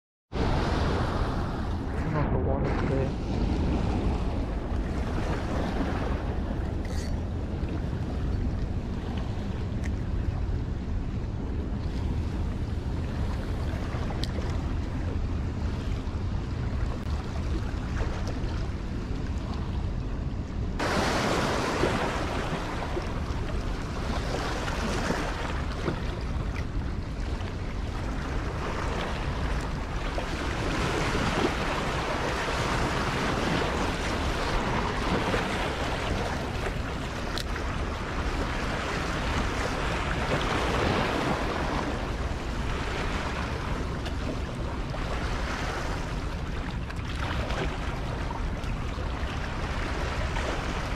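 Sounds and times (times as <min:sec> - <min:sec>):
wind noise on microphone: 0:00.3 - 0:50.9
water rushing: 0:00.4 - 0:10.9, 0:20.8 - 0:50.9.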